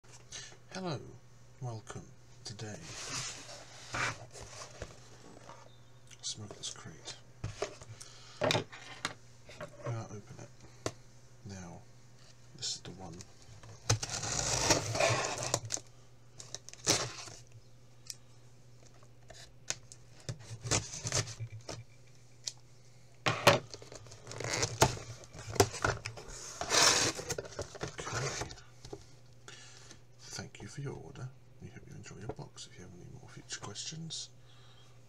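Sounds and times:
steady low hum: 0.1s - 35.0s
tape ripping: 13.9s - 15.8s, 16.6s - 17.4s
cardboard flaps scraping: 24.2s - 28.5s.

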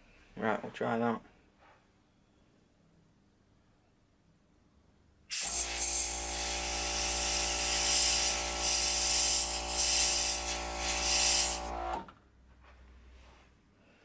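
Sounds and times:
airbrush spraying hiss: 5.3s - 11.7s
air compressor humming: 5.3s - 12.1s.

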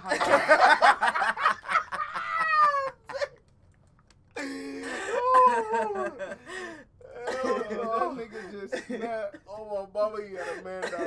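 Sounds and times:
person wailing: 4.4s - 6.4s, 7.0s - 8.2s.

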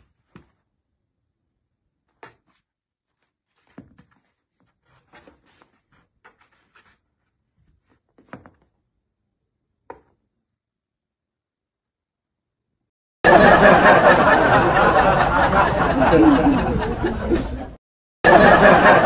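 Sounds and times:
cat scratching cardboard box: 2.1s - 8.7s.

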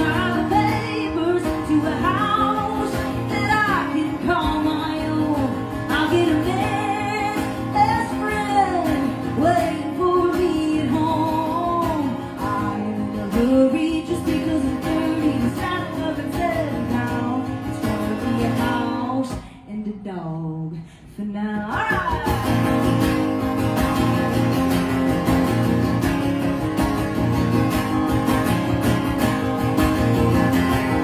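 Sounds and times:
woman singing: 0.0s - 23.4s
acoustic guitar: 0.0s - 31.0s.

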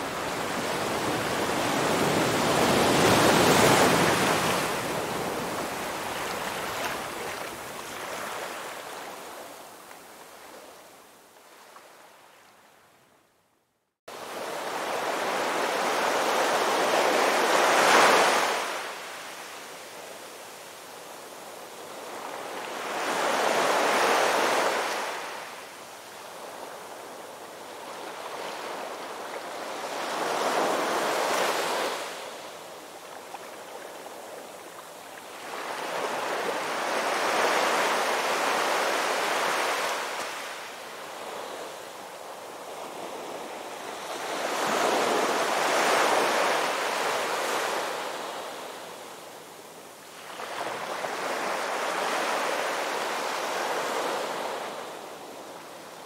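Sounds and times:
ocean waves breaking: 0.0s - 8.8s.

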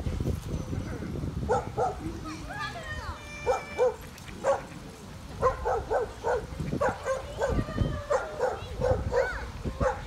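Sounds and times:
dog barking: 1.5s - 2.0s, 3.4s - 4.7s, 5.4s - 10.0s.

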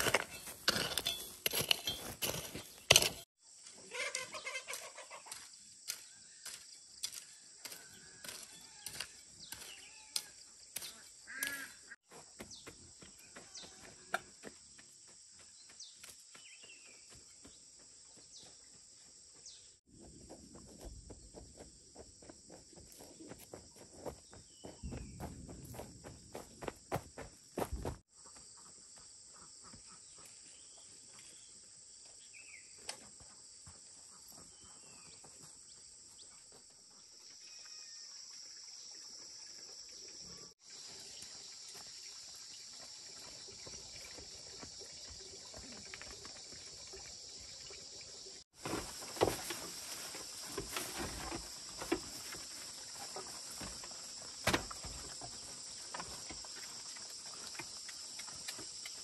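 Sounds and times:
knocks and rustles: 48.6s - 52.6s.

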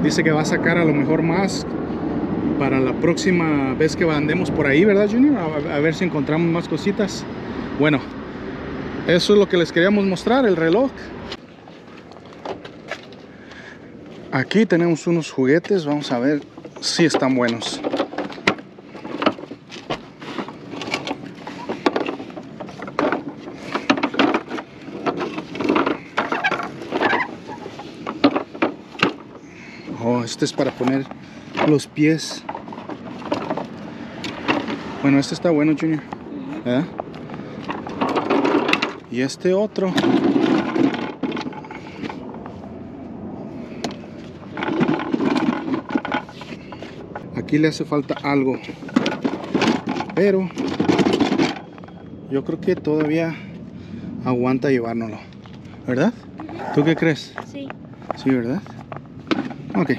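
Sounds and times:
junk scraping: 10.4s - 54.0s, 55.1s - 59.9s
rustling: 15.9s - 35.1s
hard toys clicking and knocking: 16.1s - 29.6s, 32.4s - 34.8s, 36.9s - 39.0s, 39.9s - 42.2s, 43.8s - 47.3s, 48.1s - 52.0s.

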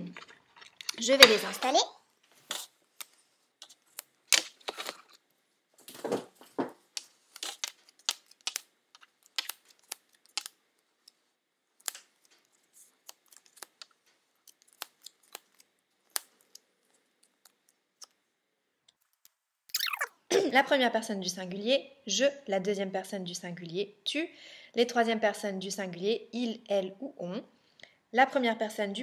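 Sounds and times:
paper rustling: 0.6s - 5.2s, 5.8s - 11.2s.

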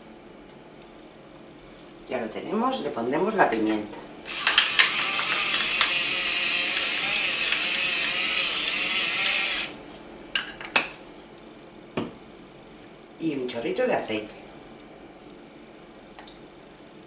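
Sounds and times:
pepper mill grinding: 4.3s - 9.7s.

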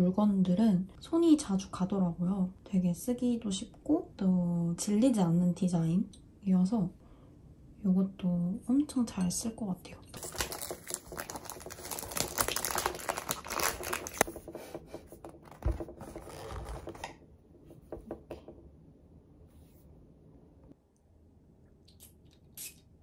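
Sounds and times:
packaging crinkling and rustling: 10.2s - 14.6s.

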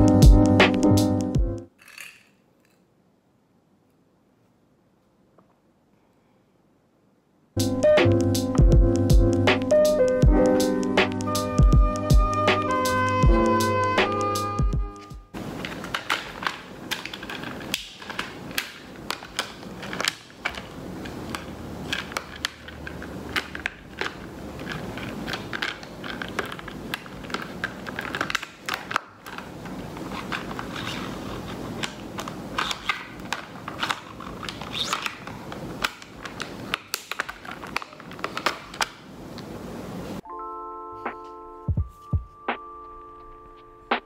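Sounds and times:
rustling packaging and paper: 15.4s - 39.6s.

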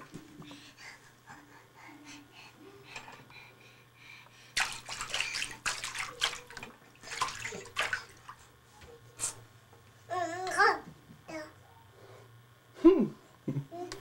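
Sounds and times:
baby's hand splashing water: 4.6s - 8.4s
faucet water running into basin: 4.6s - 8.4s.

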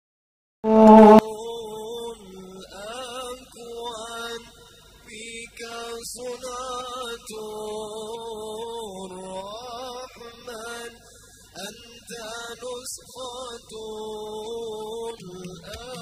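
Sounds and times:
man singing devotional song: 1.2s - 16.0s.

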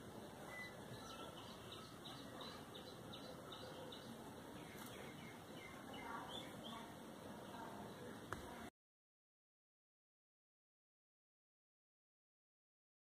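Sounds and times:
faint background hiss: 0.0s - 8.7s
bird chirping: 0.2s - 6.9s.

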